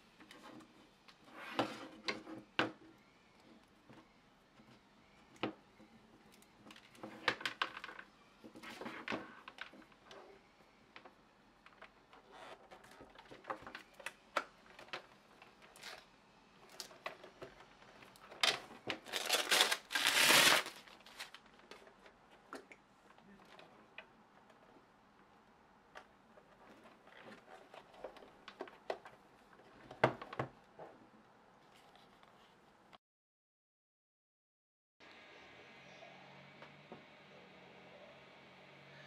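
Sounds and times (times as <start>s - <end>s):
plastic bag crinkling: 19.0s - 21.4s.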